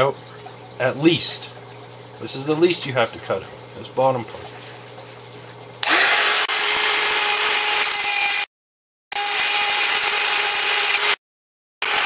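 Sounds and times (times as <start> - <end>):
rotary tool cutting pipe: 5.8 - 8.5.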